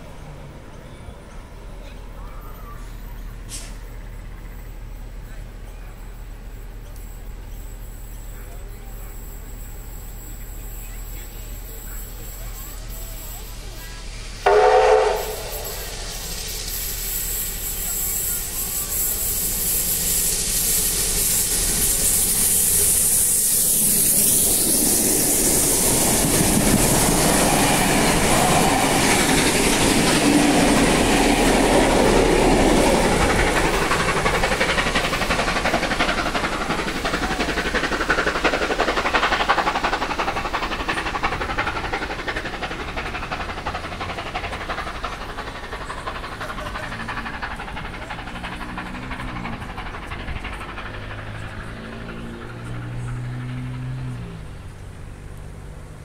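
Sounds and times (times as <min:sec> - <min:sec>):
train wheels and carriages passing: 0:00.0 - 0:56.0
loud train whistle blast: 0:14.4 - 0:16.3.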